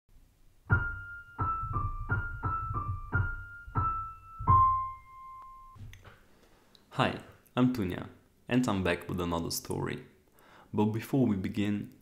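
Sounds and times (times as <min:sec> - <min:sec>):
keyboard jingle notes: 0:00.7 - 0:05.8.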